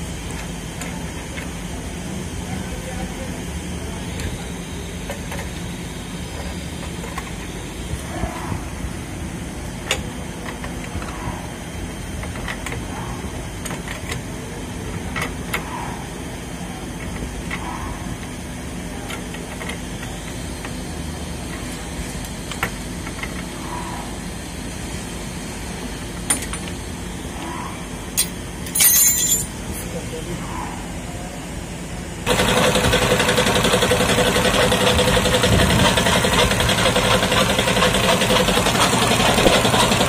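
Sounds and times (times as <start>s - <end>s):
low machinery hum: 0.0s - 40.0s
spanner clinking on metal pipes: 28.2s - 29.6s.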